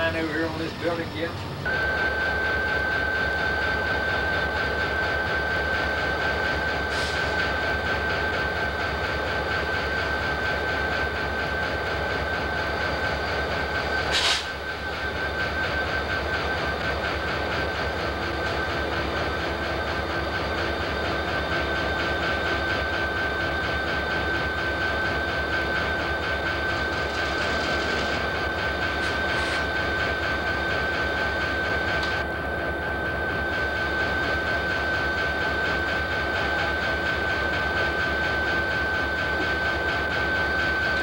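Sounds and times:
locomotive engines idling: 0:00.0 - 0:41.0.

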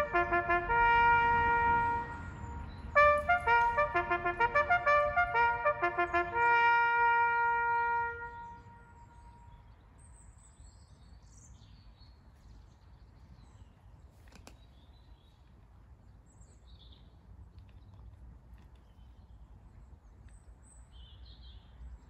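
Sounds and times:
trumpet bugle call: 0:00.0 - 0:09.4.

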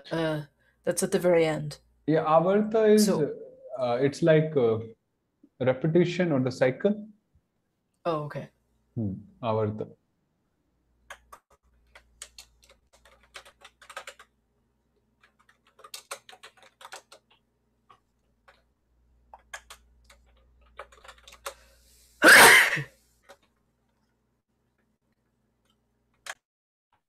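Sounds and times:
computer keyboard typing: 0:11.0 - 0:14.4, 0:15.2 - 0:21.6, 0:23.2 - 0:23.5.

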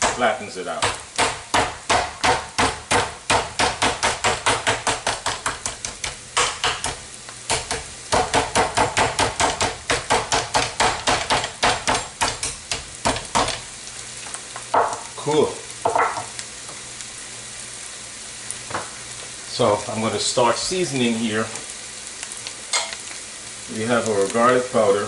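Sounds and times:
mallet pounding meat on cutting board: 0:00.0 - 0:13.6.

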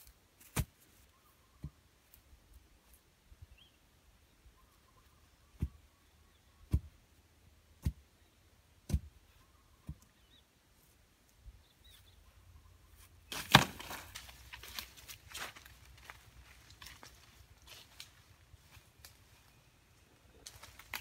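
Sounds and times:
bamboo pole thudding into soil: 0:00.4 - 0:00.8, 0:13.3 - 0:14.8
pole clattering into grass: 0:13.3 - 0:14.7.

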